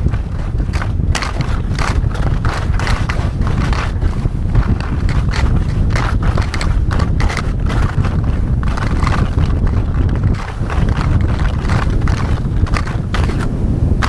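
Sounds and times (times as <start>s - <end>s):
skis scraping over crusted snow: 0.0s - 13.5s
wind rumble on microphone: 0.0s - 14.0s.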